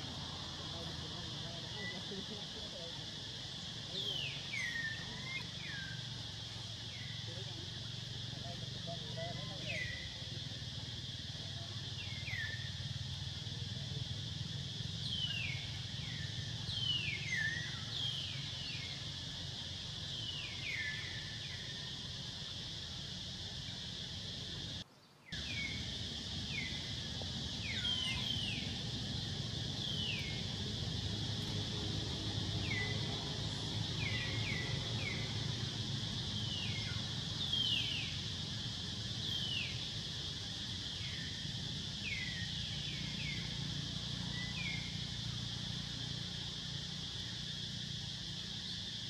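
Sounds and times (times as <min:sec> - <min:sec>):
insects droning: 0:00.0 - 0:49.0
bird chirping: 0:24.7 - 0:30.7.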